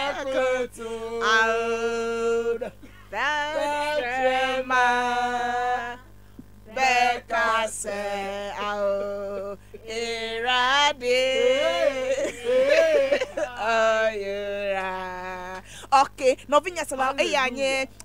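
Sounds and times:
person singing long notes: 7.8s - 15.6s.

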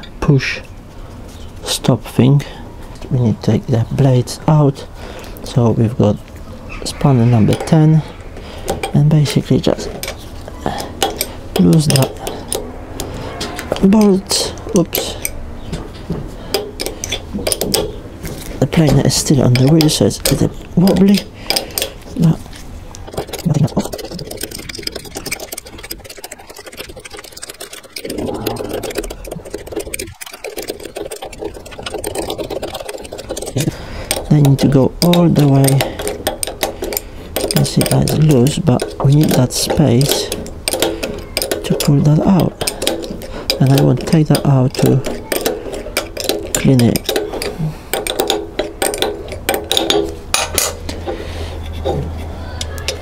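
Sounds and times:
low steady hum: 0.0s - 53.0s
spanner ratcheting on bolts: 8.6s - 15.4s, 16.5s - 18.1s, 18.7s - 52.0s
metal bar handled: 16.0s - 53.0s.

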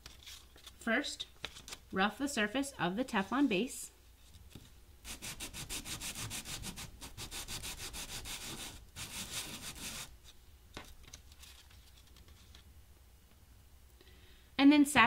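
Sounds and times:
block rasping on sandpaper: 5.1s - 10.1s.

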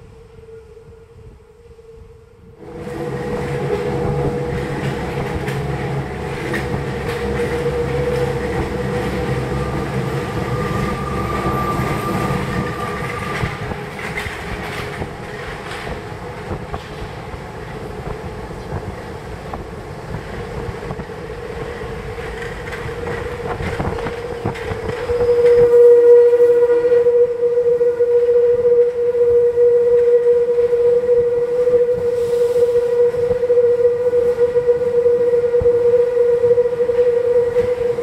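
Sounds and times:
train rumbling in tunnel: 0.0s - 38.0s
high-pitched wheel squeal: 2.7s - 15.9s, 22.6s - 38.0s.

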